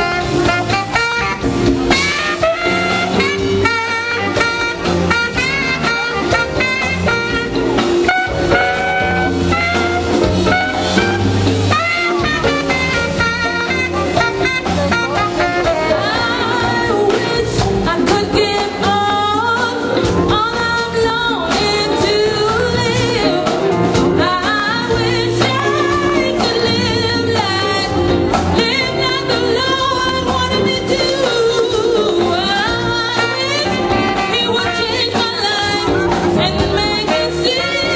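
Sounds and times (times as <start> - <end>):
congas: 0.0 - 37.9
drum kit: 0.0 - 37.9
saxophone: 0.0 - 37.9
person singing: 13.3 - 37.9.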